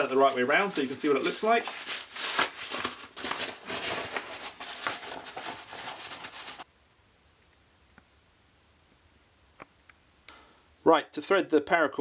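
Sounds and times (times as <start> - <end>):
stiff fabric rustling: 0.0 - 6.7.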